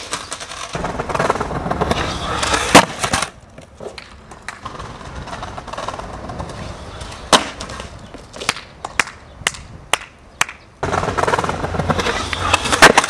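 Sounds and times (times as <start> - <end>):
loose skateboard clacking on ground: 0.0 - 13.0
skateboard wheels rolling on concrete: 0.0 - 13.0
skateboard landing smack: 2.7 - 4.6, 7.3 - 7.8.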